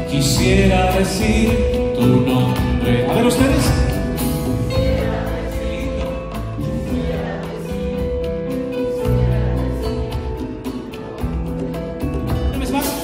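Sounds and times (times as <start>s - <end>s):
bass line: 0.0s - 12.6s
light percussion: 0.0s - 13.0s
live band music: 0.0s - 13.0s.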